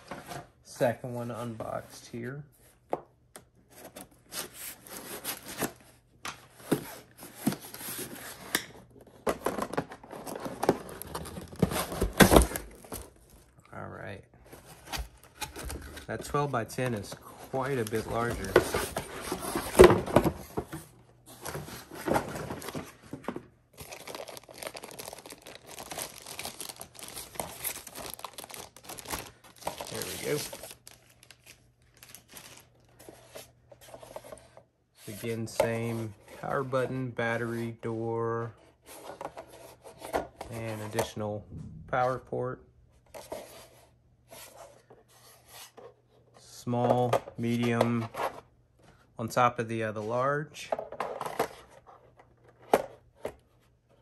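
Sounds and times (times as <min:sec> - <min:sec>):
packaging rustling and tearing: 0:09.4 - 0:13.3, 0:14.6 - 0:20.5, 0:23.8 - 0:33.4.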